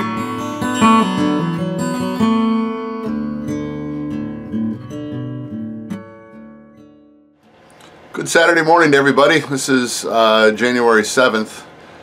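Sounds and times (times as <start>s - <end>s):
acoustic guitar plucked notes: 0.0s - 7.4s.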